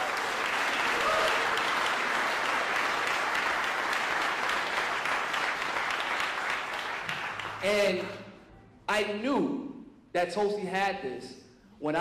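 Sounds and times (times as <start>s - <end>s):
audience applauding: 0.0s - 8.2s
shout from crowd: 0.9s - 1.6s.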